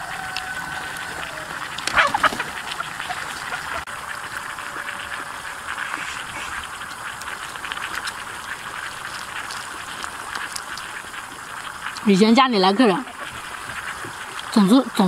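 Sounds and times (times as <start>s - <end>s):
steady hiss: 0.0s - 15.0s
person slurping: 5.6s - 12.1s
person chewing: 5.9s - 12.1s.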